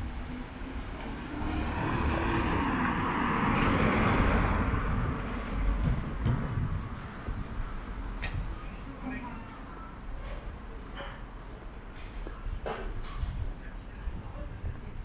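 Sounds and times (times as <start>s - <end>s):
motor vehicle passing: 1.1s - 5.7s.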